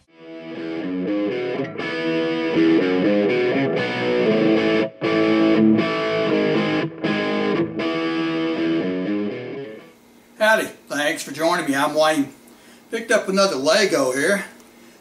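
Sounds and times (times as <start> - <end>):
instrumental guitar music: 0.0 - 10.0.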